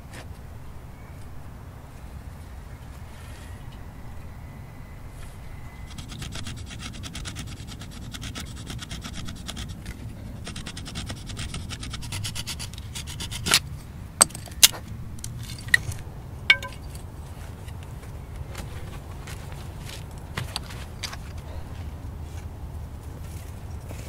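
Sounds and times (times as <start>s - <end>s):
stone flake scraping stick: 5.8s - 17.0s
sharp clicks or knocks: 16.5s - 17.0s.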